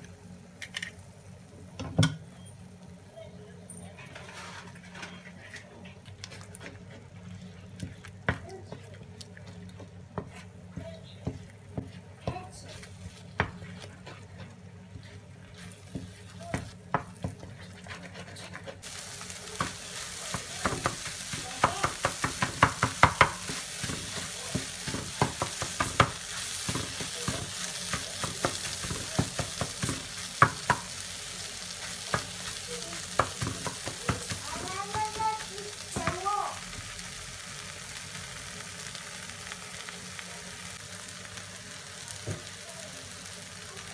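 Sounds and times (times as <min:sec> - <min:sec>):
wooden spatula scraping a frying pan: 0:04.0 - 0:19.0
food sizzling in a pan: 0:06.2 - 0:43.9.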